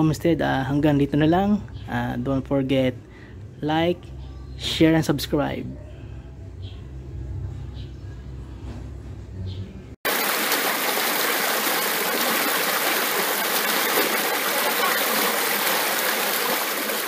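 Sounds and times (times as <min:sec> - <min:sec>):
stream rushing over boulders: 0:10.1 - 0:17.0.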